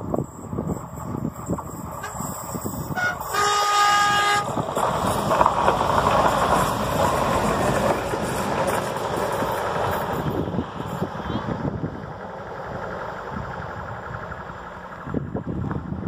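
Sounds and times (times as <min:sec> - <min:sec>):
train passing with rushing noise: 0:00.0 - 0:16.0
train horn blast: 0:02.0 - 0:04.5.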